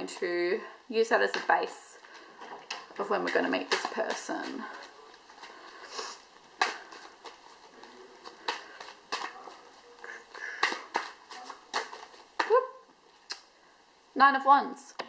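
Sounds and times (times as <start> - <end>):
cards shuffled by hand: 3.7 - 12.6.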